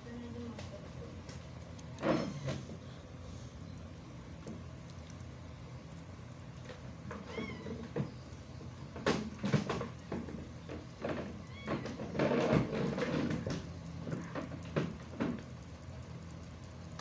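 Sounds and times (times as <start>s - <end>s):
puppy mewing cry: 7.2s - 7.8s.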